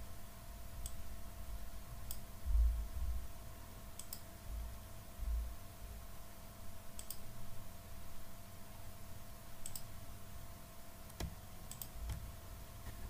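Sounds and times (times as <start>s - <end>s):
faint steady hum: 0.0s - 13.0s
computer mouse clicks: 4.0s - 4.3s, 7.0s - 7.2s, 9.6s - 9.9s, 11.1s - 12.2s.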